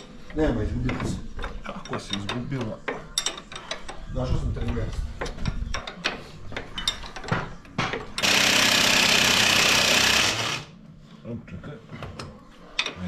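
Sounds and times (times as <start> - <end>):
impact wrench hammering: 7.8 - 10.7.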